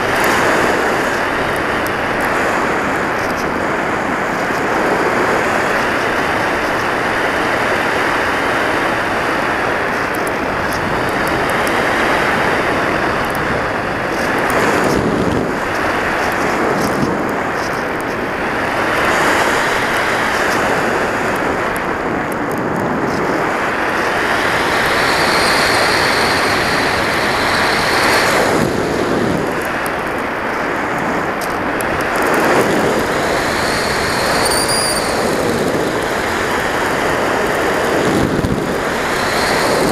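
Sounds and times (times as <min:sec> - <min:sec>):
thin wavering whistle: 0:33.8 - 0:35.2.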